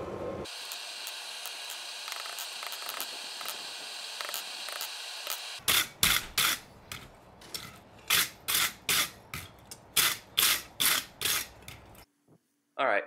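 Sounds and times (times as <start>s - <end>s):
wire brush scraping metal: 5.6s - 12.0s.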